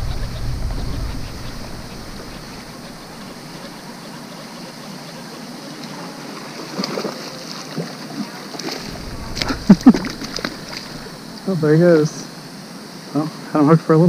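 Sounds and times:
fountain water rushing: 0:08.8 - 0:12.2.

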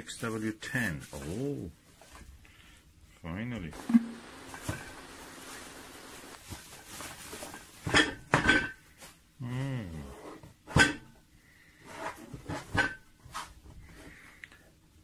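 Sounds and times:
bubble wrap rustling: 0:03.8 - 0:07.9.

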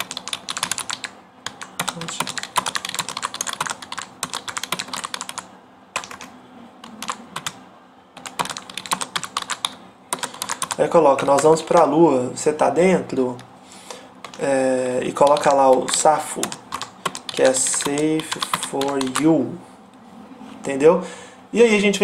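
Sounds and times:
keyboard typing: 0:00.0 - 0:07.6, 0:08.2 - 0:11.9, 0:14.2 - 0:14.5, 0:15.1 - 0:19.3.

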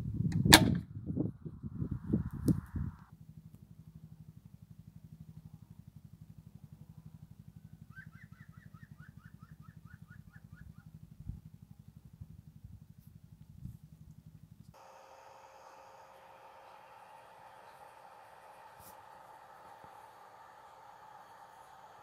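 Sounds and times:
pulsing motor-like hum: 0:00.0 - 0:22.0
bird singing rising notes: 0:07.8 - 0:11.0.

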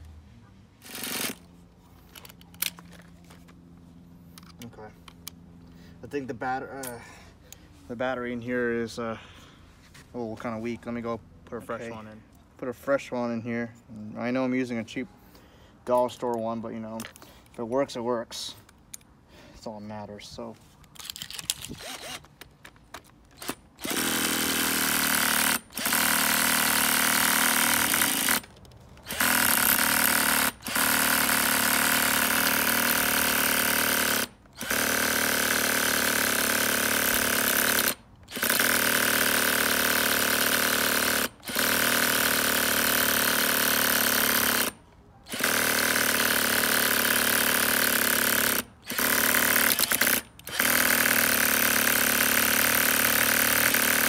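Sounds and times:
cordless drill cranking engine: 0:00.8 - 0:03.5, 0:21.0 - 0:22.3, 0:23.3 - 0:54.0.

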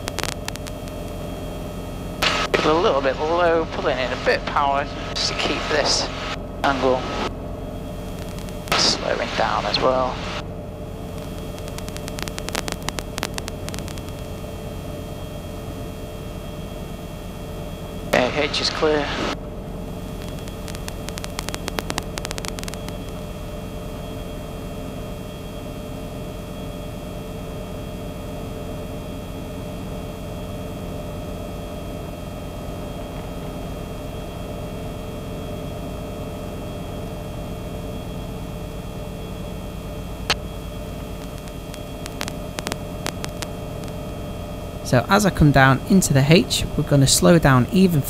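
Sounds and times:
clicks: 0:00.0 - 0:01.2, 0:08.2 - 0:08.9, 0:11.1 - 0:14.3, 0:20.2 - 0:23.2, 0:41.1 - 0:44.0
helicopter engine and rotors droning: 0:00.0 - 0:48.0.

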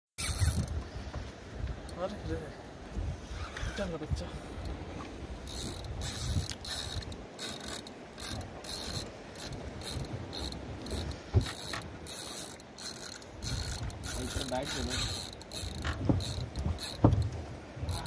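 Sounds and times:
fishing reel whirring and clicking: 0:00.2 - 0:00.8, 0:05.4 - 0:17.3.

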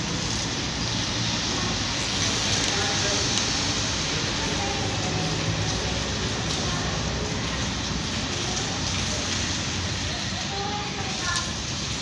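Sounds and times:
rain on a wet street: 0:00.0 - 0:12.0.

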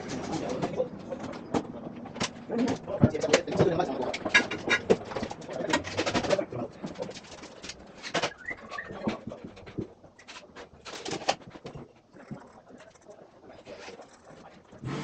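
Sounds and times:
tools and metal conduit clicking: 0:00.0 - 0:08.8.

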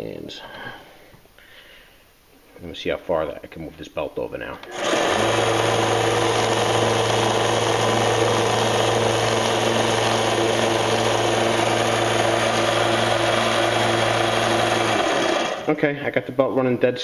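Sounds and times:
belt sander running: 0:04.6 - 0:15.8.

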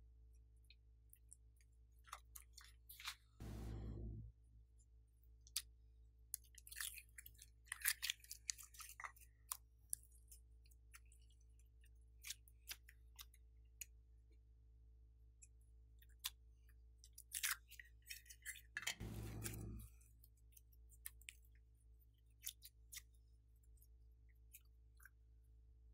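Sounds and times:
low steady hum: 0:03.4 - 0:04.4, 0:19.0 - 0:20.1.

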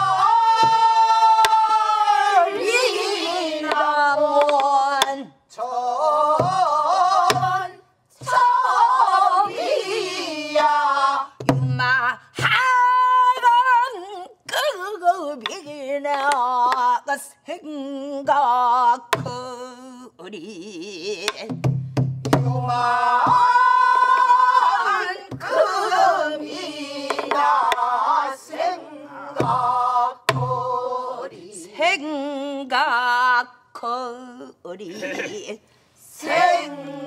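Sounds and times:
group singing along: 0:00.0 - 0:13.6, 0:22.4 - 0:33.5, 0:36.0 - 0:37.0
woman singing with vibrato: 0:00.0 - 0:21.6, 0:22.4 - 0:37.0.

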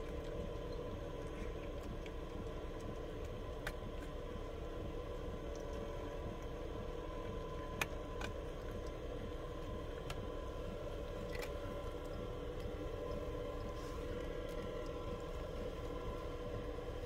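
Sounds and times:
low hum: 0:00.0 - 0:17.0
cat crunching dry food: 0:07.1 - 0:16.6.

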